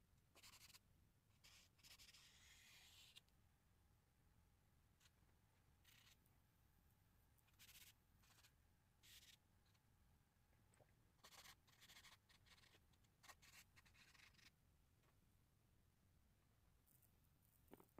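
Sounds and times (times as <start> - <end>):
pen scratching on paper: 0.3 - 3.3, 5.8 - 6.2, 7.5 - 9.4, 11.2 - 14.6.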